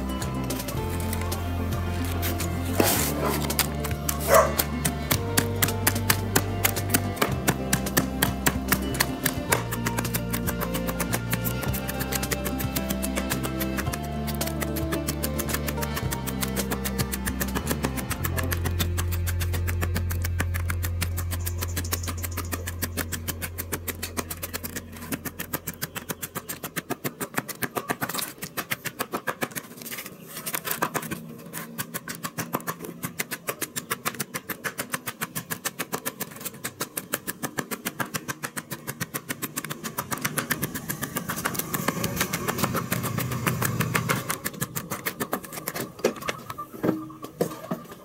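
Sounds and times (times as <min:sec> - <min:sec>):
low hum: 0:00.0 - 0:26.3
pestle pounding in plastic tub: 0:00.0 - 0:47.8.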